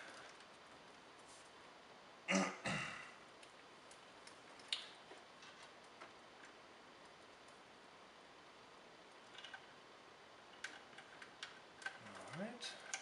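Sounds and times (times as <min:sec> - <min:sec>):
person clearing throat: 0:02.3 - 0:03.2.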